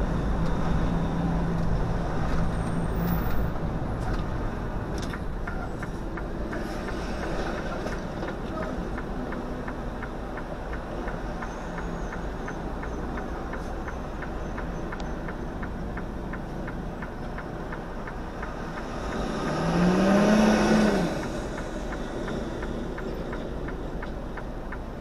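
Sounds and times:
light ticking: 0:04.9 - 0:19.7, 0:21.2 - 0:25.0
engine revving: 0:18.6 - 0:22.6.

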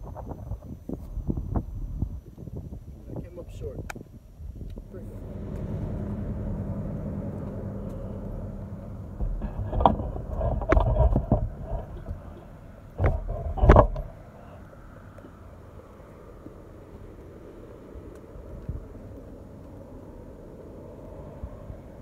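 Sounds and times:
wind buffeting microphone: 0:00.0 - 0:22.0
golf cart motor humming: 0:04.5 - 0:20.9.

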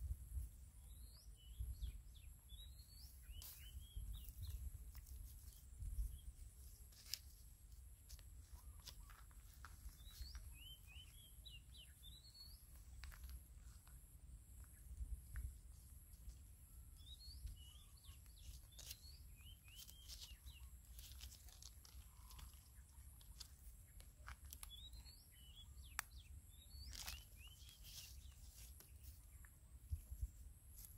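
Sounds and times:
faint bird chirps: 0:00.4 - 0:07.4, 0:08.1 - 0:30.9.

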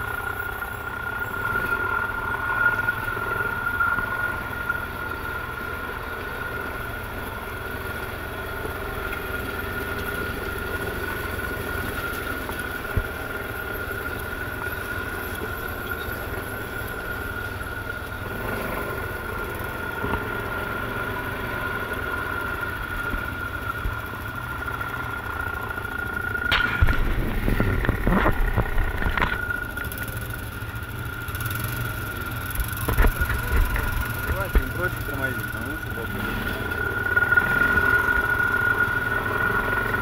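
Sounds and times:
atv engine running: 0:00.0 - 0:40.0
knocks and clunks from rough ground: 0:09.0 - 0:16.2, 0:26.3 - 0:30.4, 0:32.5 - 0:36.8.

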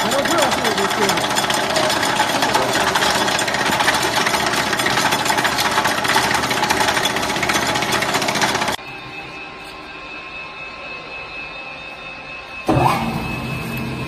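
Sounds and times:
rubber cutting machine clattering: 0:00.0 - 0:08.8.

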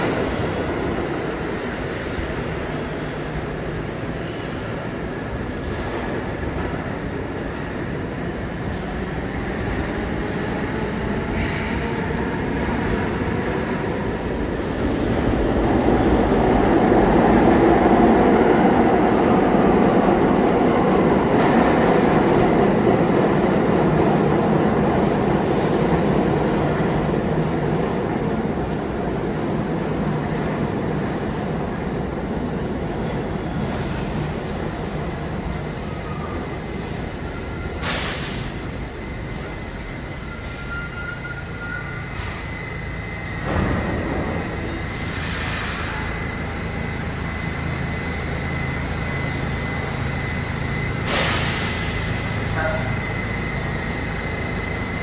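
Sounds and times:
subway train wheels rumbling: 0:00.0 - 0:55.0
high wheel squeal: 0:14.3 - 0:14.8, 0:28.1 - 0:34.2, 0:36.0 - 0:43.4.

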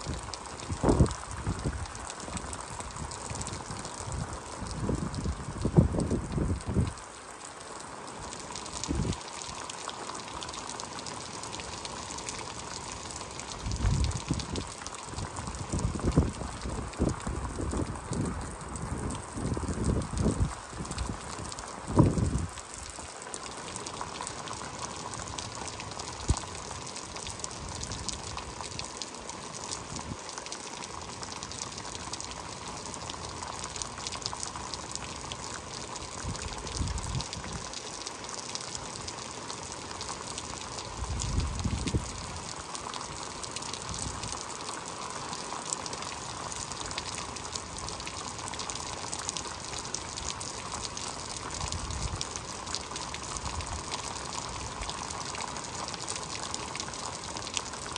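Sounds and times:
wind rumble on microphone: 0:00.0 - 0:07.0, 0:08.8 - 0:09.2, 0:13.6 - 0:22.6, 0:36.2 - 0:37.6, 0:41.0 - 0:42.4
gushing water: 0:00.0 - 0:57.9
heavy rain: 0:00.0 - 0:57.9.

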